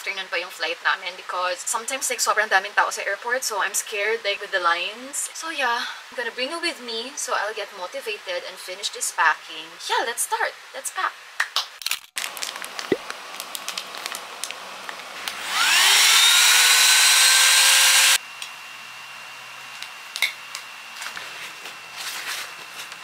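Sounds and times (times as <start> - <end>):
electric vacuum pump whirring: 13.1 - 23.0.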